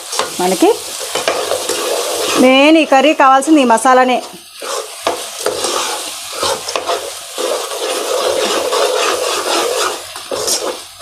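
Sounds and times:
frying sizzle: 0.0s - 11.0s
ladle scraping a pan: 0.9s - 2.6s, 4.5s - 11.0s.

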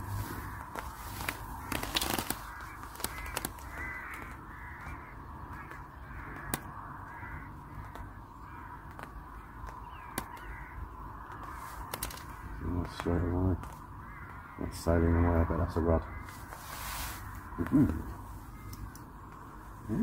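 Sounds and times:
crows cawing: 0.0s - 20.0s
sharp taps: 2.9s - 8.2s, 8.8s - 10.6s.

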